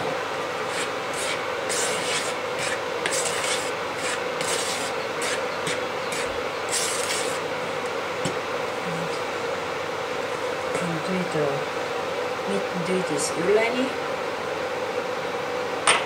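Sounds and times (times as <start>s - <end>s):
steady background hum: 0.0s - 16.0s
dough rubbing and scraping: 0.6s - 7.5s.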